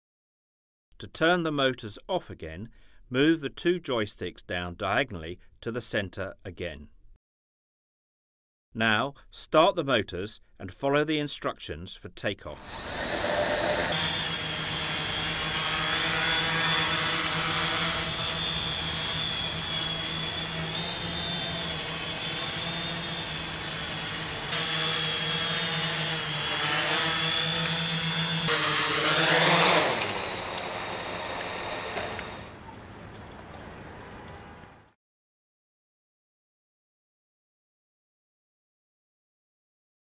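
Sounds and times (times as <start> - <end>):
high whine: 12.6 - 32.6
quadcopter propellers humming: 12.6 - 32.6.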